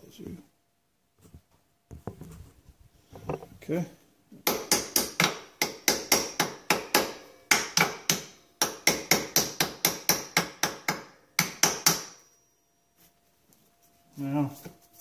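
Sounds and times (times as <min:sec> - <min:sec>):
hammer tapping on metal: 0:04.4 - 0:12.3.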